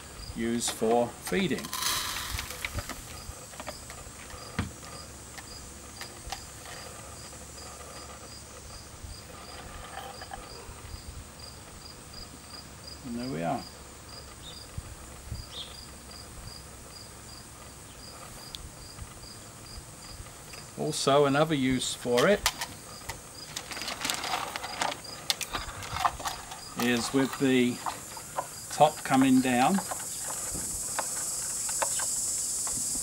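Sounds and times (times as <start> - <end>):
cricket chirping: 0.0 - 33.0
plastic parts knocking: 22.2 - 32.1.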